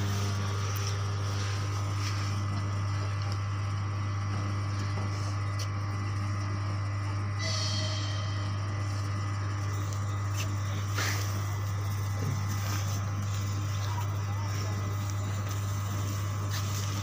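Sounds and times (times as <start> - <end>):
diesel locomotive engine drone: 0.0 - 17.0
higher tone: 7.4 - 10.9.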